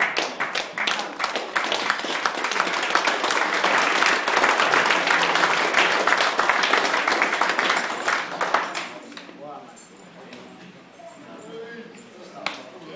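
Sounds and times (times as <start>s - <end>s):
crowd applauding: 0.0s - 9.2s.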